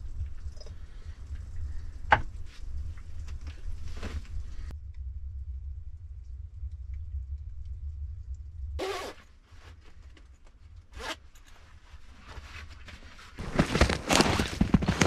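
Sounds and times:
low steady hum: 0:00.0 - 0:15.0
jacket zipper zipping: 0:08.8 - 0:09.2, 0:11.0 - 0:11.2.

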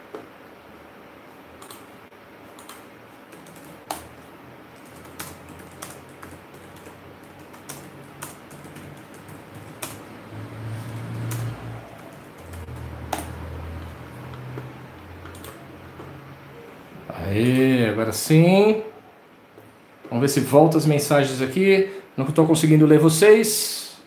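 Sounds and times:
low hum: 0:00.0 - 0:17.2
typing on a keyboard: 0:01.6 - 0:01.8, 0:02.6 - 0:04.2, 0:04.8 - 0:10.0, 0:11.2 - 0:16.1.

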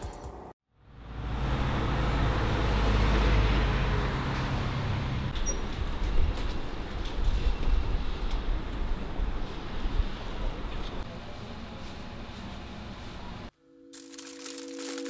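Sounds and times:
street traffic noise: 0:00.0 - 0:13.5.

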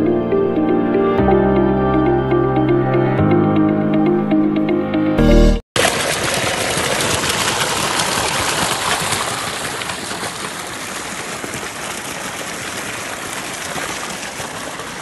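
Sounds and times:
water gushing from pipe: 0:05.8 - 0:15.0.

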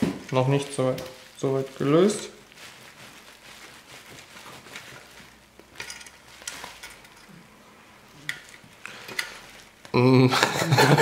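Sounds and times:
metallic clicks and scrapes: 0:08.2 - 0:09.7.

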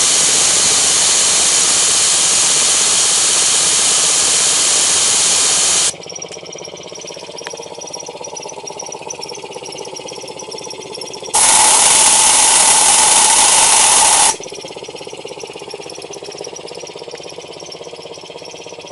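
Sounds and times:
air compressor hissing: 0:00.0 - 0:06.0, 0:11.3 - 0:14.5
compressor pulsing: 0:00.0 - 0:18.9.

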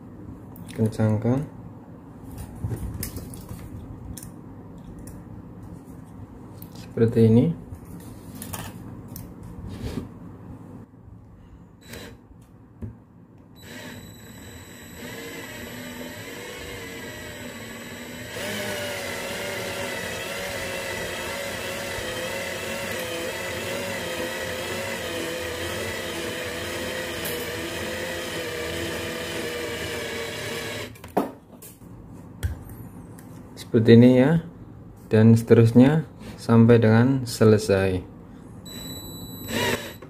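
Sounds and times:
cordless drill motor whine: 0:11.8 - 0:12.2, 0:13.6 - 0:31.0, 0:38.7 - 0:40.0.

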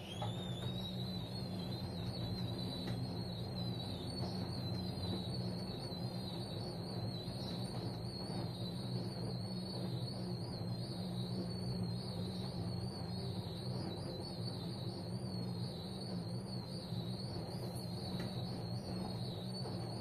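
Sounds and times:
washing machine motor humming: 0:00.0 - 0:20.0.

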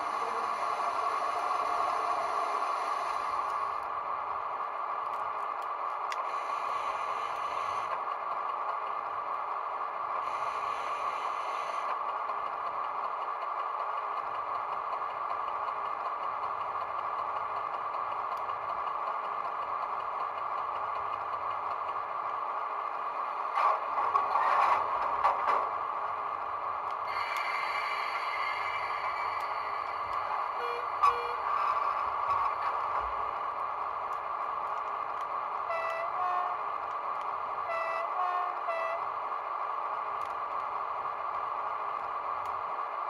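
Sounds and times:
diesel engine idling through small speaker: 0:00.0 - 0:04.5.

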